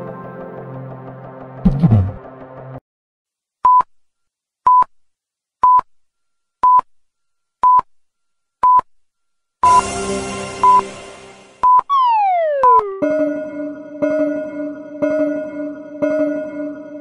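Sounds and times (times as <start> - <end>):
background music: 0.0 - 2.8, 9.6 - 17.0
electronic timer beeps: 10.6 - 10.9, 11.6 - 13.0.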